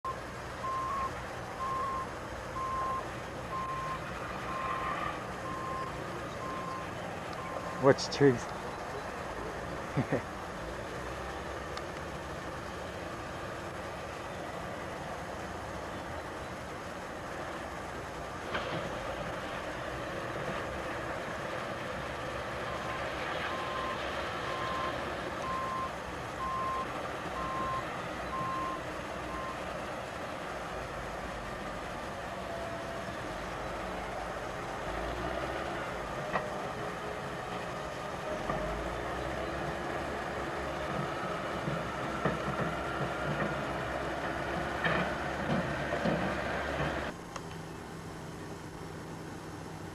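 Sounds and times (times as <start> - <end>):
steady background noise: 0.0 - 49.9
reversing alarm beeping: 0.1 - 8.0, 22.6 - 29.7
rushing background noise: 0.1 - 49.9.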